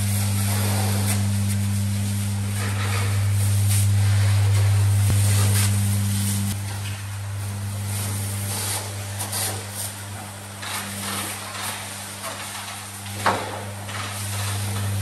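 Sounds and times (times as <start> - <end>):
pressure washer spray hissing: 0.0 - 6.6, 7.4 - 10.0
low steady hum: 0.0 - 8.9.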